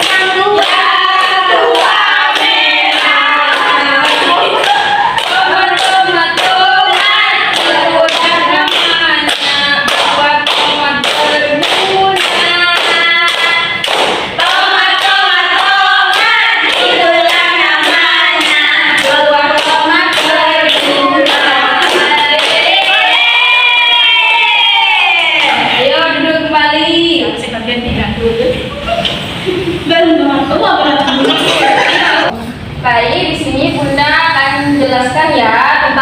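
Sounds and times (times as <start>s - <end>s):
hands clapping in rhythm: 0.0s - 23.1s
women singing together: 0.0s - 27.4s, 29.9s - 32.4s, 33.9s - 36.0s.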